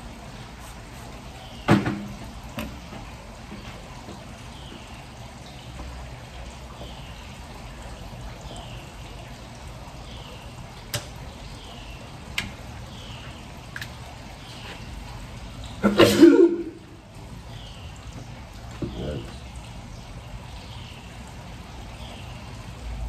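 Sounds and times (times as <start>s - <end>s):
person coughing: 15.8s - 16.7s.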